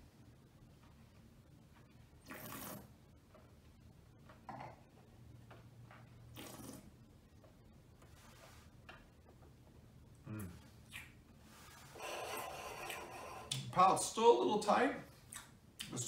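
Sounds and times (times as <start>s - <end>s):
small mouth click: 10.3s - 11.2s, 15.3s - 15.9s.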